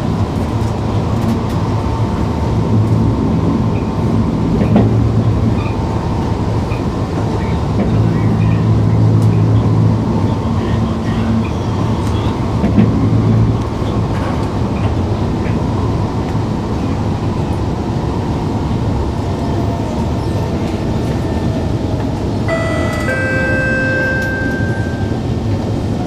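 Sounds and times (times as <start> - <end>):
train rumble inside carriage: 0.0 - 26.0
two-note descending chime: 22.5 - 25.5.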